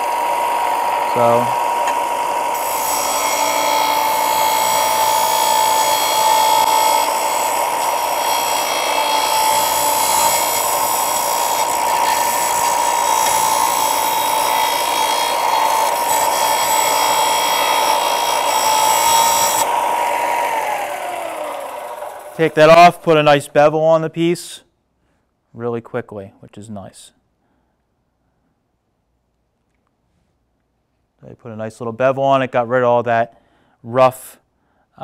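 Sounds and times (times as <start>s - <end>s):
motor whine: 0.0s - 22.5s
sander grinding metal: 0.0s - 22.9s.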